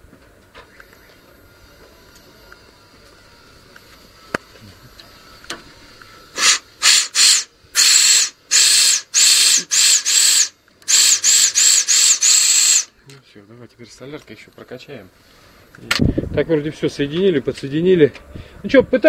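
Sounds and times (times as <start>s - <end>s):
compressed air blow gun hissing: 6.3s - 12.9s.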